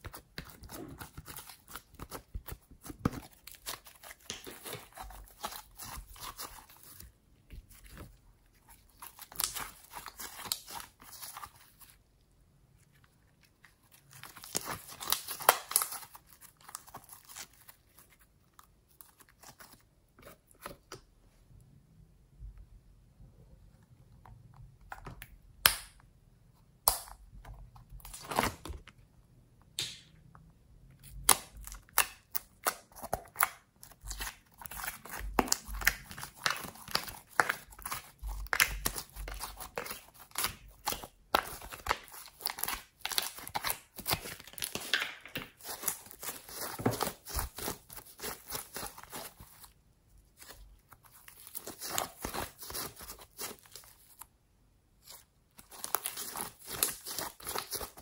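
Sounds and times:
slime crackling and popping: 8.9 - 11.4, 14.0 - 17.7, 31.0 - 49.6, 55.7 - 58.0.

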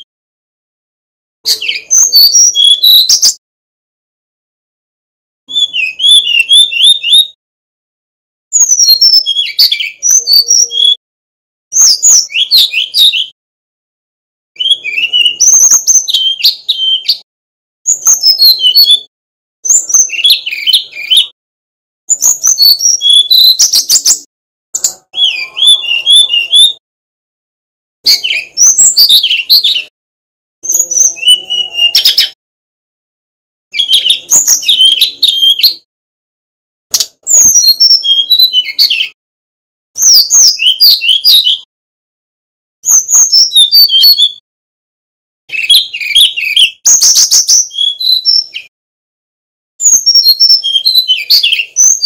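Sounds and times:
bird fluty warbling song: 1.5 - 3.4, 5.5 - 7.4, 8.5 - 11.0, 11.7 - 13.4, 14.6 - 21.4, 22.1 - 26.8, 28.0 - 29.9, 30.6 - 32.4, 33.7 - 35.9, 36.9 - 39.2, 40.0 - 41.7, 42.8 - 44.4, 45.5 - 48.7, 49.8 - 52.0.

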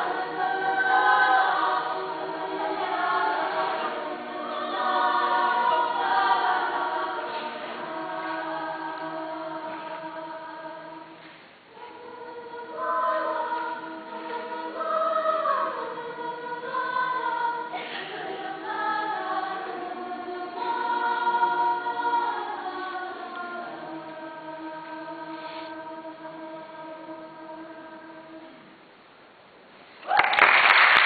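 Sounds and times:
choir singing: 0.0 - 28.7.

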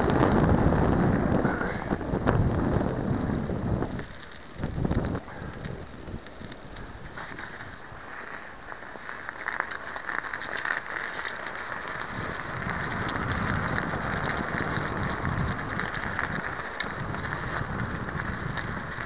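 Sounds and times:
low rumble: 0.0 - 8.2
vehicle running over crusty snow: 0.0 - 19.0.

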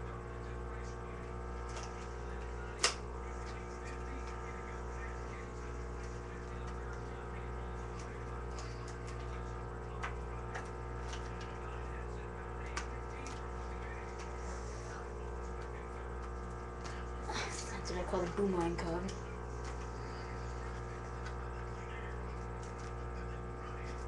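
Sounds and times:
electrical hum: 0.0 - 24.0
playing card clicks: 2.8 - 3.0.

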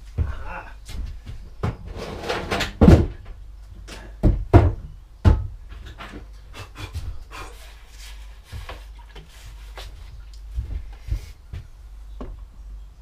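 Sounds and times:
objects knocking and scraping: 1.6 - 3.3, 3.9 - 6.3.

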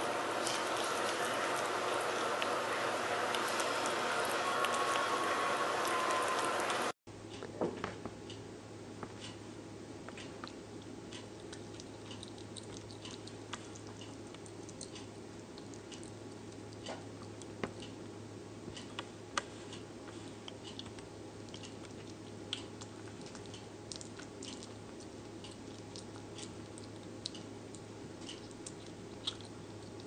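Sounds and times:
animal chewing food: 0.0 - 7.0, 10.1 - 17.9, 18.8 - 30.0
steady low hum: 0.0 - 30.0
small wet clicks and smacks: 10.1 - 18.0, 20.4 - 30.0.

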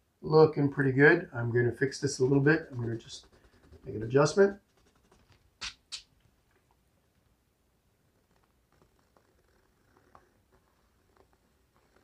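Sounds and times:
pencil scratching: 1.8 - 5.5.

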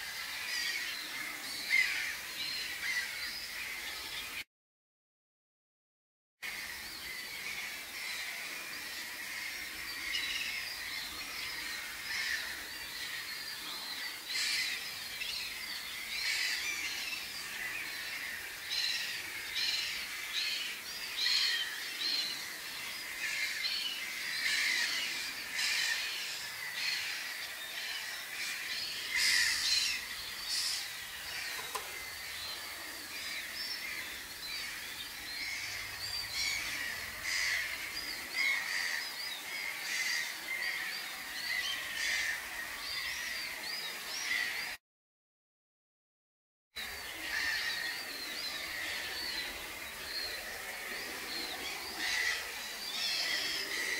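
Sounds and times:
wading birds calling: 28.3 - 39.0, 48.6 - 53.9.

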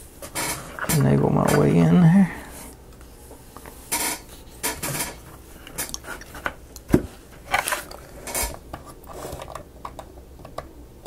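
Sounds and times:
model pieces clicking and tapping: 9.4 - 10.7.

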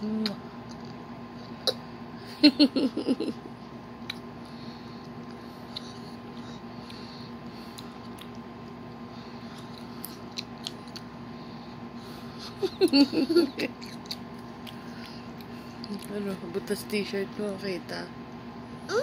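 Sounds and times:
low steady hum: 0.0 - 19.0
toddler giggling: 2.4 - 3.4, 12.4 - 13.8.

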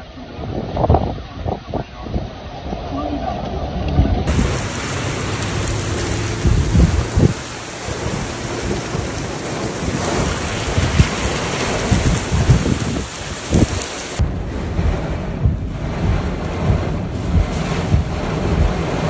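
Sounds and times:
strong storm wind: 0.0 - 19.0
wind buffeting microphone: 0.0 - 19.0
heavy rain: 2.4 - 19.0.

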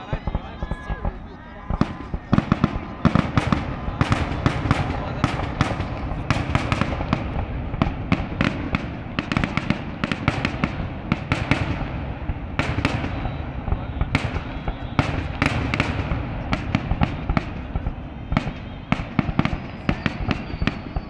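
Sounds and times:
firework crackle: 0.0 - 21.0.

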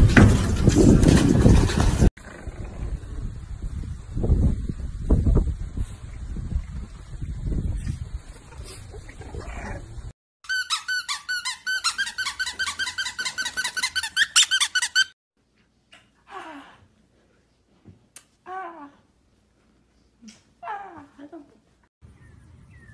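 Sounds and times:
rumbling wind-like noise: 0.0 - 10.1
rapid high-pitched squeaking: 10.4 - 15.2.

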